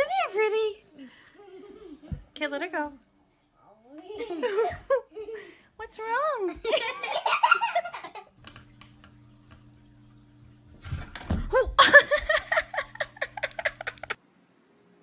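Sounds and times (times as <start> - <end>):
low electrical hum: 0.0 - 15.0
person giggling: 11.5 - 14.2
person laughing loudly: 11.5 - 14.2.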